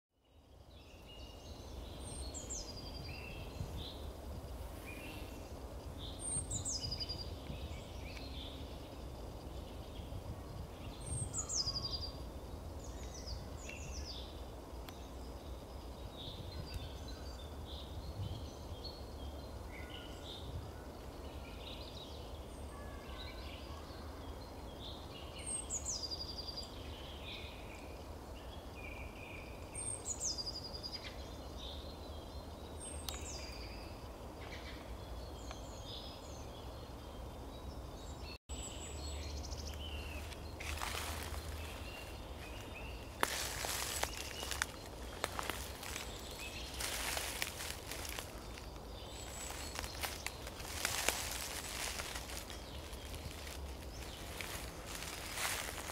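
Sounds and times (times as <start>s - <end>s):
bird chirps: 29.0s - 55.9s
songbird singing falling notes: 38.5s - 55.9s.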